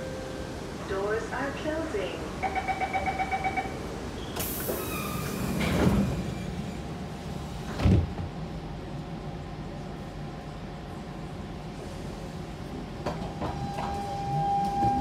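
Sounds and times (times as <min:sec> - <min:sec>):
sliding doors thudding shut: 0:04.4 - 0:06.3, 0:07.6 - 0:08.3.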